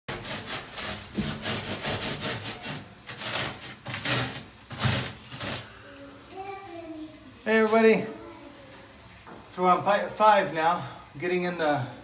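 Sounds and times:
blade scraping styrofoam: 0:00.1 - 0:05.7.

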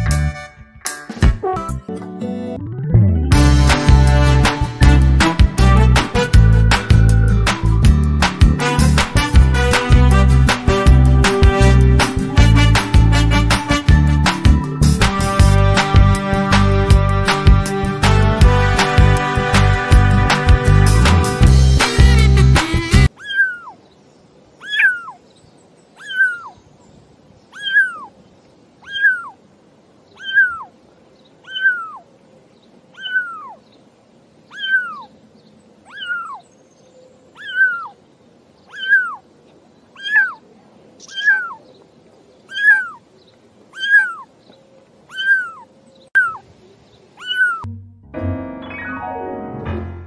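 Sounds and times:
kitten meowing: 0:23.2 - 0:23.8, 0:24.6 - 0:25.2, 0:26.0 - 0:26.5, 0:27.6 - 0:28.1, 0:28.8 - 0:29.3, 0:30.2 - 0:30.7, 0:31.5 - 0:32.0, 0:33.0 - 0:33.5, 0:34.5 - 0:35.1, 0:35.9 - 0:36.4, 0:37.4 - 0:37.9, 0:38.7 - 0:39.2, 0:40.0 - 0:40.4, 0:41.0 - 0:41.6, 0:42.5 - 0:43.0, 0:43.8 - 0:44.2, 0:45.1 - 0:45.6, 0:46.2 - 0:46.4, 0:47.2 - 0:47.7.

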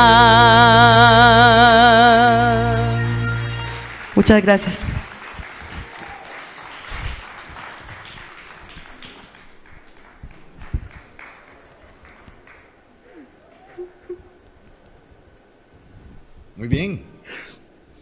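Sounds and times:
audience applause: 0:03.5 - 0:14.5.

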